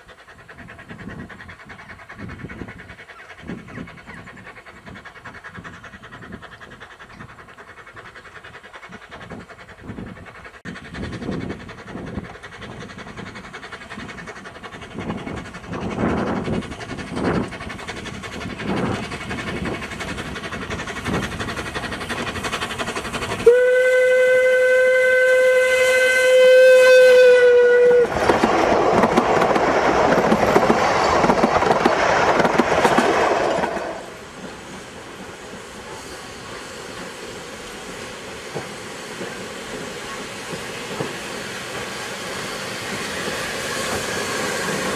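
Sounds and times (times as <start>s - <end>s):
steam locomotive exhaust chuffs: 0.0s - 44.9s
train passing rushing clatter: 0.0s - 44.9s
long steam whistle: 23.4s - 28.2s.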